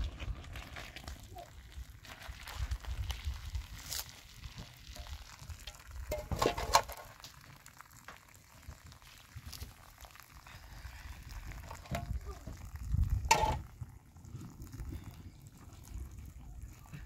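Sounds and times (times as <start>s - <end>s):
metal pot clattering down: 5.6s - 7.2s, 13.3s - 13.7s.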